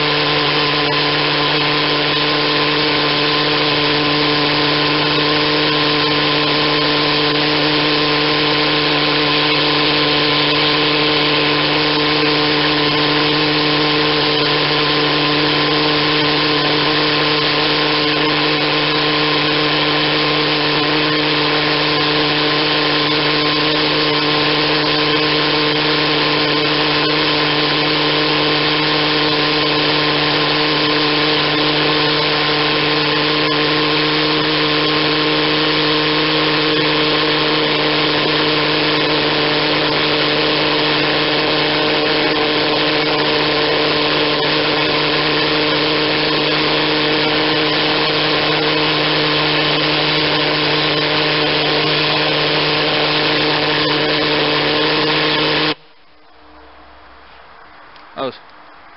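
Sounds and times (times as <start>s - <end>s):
pulse jet engine drone: 55.7s - 58.9s.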